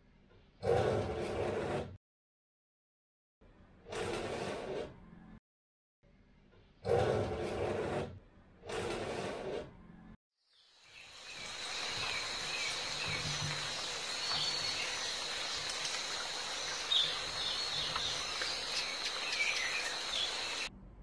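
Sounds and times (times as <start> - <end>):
high insect drone: 10.8 - 20.7
birds chirping: 10.9 - 20.7.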